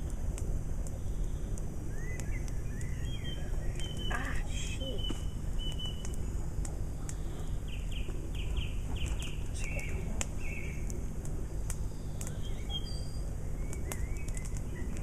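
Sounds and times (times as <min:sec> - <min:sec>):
campfire crackling and popping: 0:00.0 - 0:15.0
songbird calling: 0:01.9 - 0:06.2, 0:07.1 - 0:10.9, 0:11.8 - 0:15.0.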